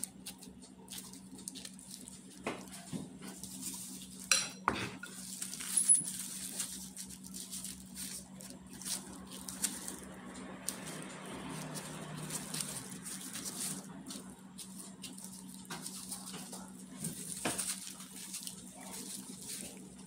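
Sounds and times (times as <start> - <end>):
steady low hum: 0.0 - 20.0
knife tapping and scraping: 4.2 - 5.2.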